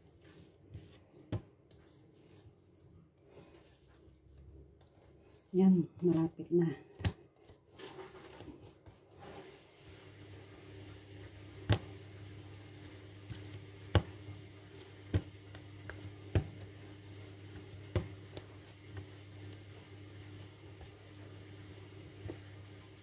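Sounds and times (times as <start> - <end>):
dough thumping on work surface: 0.9 - 1.6, 11.2 - 12.2, 13.2 - 19.2.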